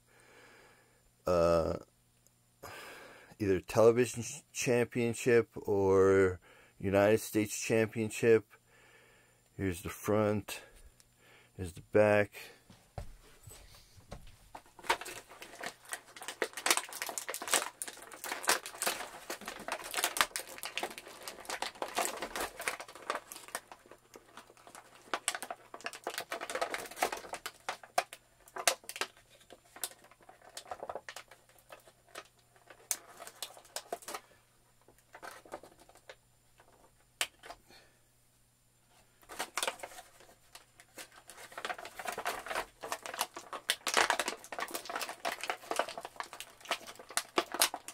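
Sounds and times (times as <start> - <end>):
packaging crinkling: 14.6 - 37.6, 39.2 - 47.9.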